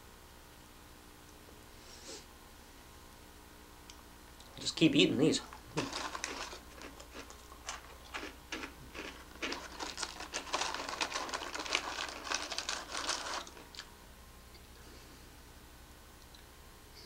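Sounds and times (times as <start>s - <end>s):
box and plastic wrapper crinkling: 5.6s - 13.9s.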